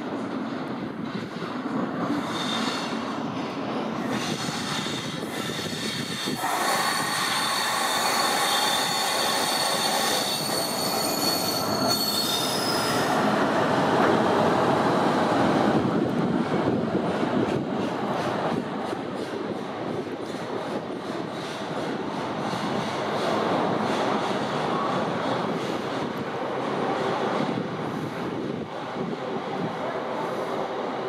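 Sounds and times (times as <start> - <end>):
train rumbling past: 0.0 - 31.0
wheel squeal on rails: 2.1 - 3.0, 4.1 - 13.2.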